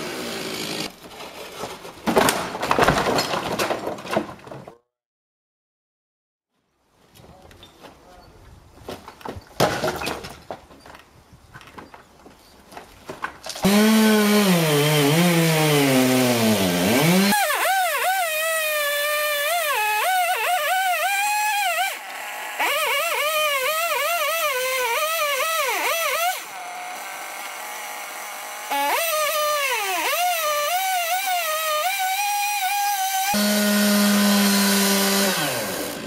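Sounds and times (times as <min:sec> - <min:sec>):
chainsaw cutting wood: 0:00.0 - 0:01.0, 0:13.5 - 0:36.0.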